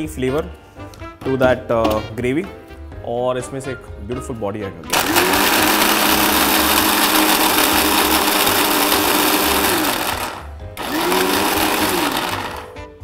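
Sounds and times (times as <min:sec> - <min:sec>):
electric mixer grinder motor whirring: 0:04.9 - 0:12.8.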